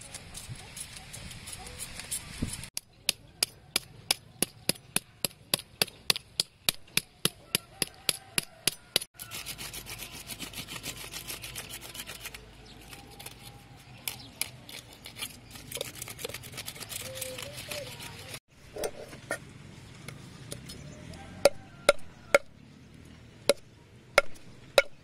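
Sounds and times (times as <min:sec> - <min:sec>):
knife scraping fish scales: 0:00.0 - 0:02.7, 0:09.0 - 0:18.4.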